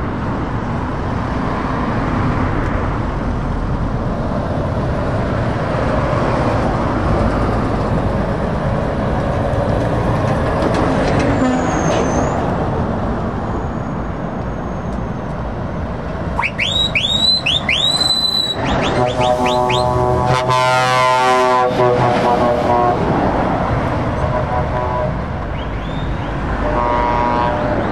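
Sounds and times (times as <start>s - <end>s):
lorries and cars driving past: 0.0s - 27.9s
high whistle-like tones: 16.4s - 20.0s, 25.5s - 26.4s.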